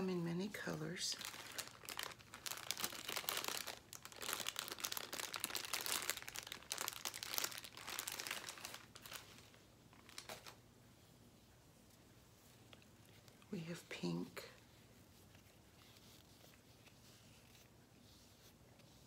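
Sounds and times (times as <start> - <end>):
balloon package crinkling: 0.8 - 10.6.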